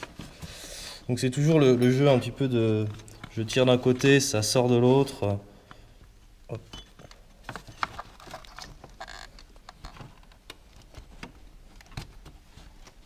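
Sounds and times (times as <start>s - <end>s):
belt clicking and rubbing on wheels: 7.1s - 11.1s.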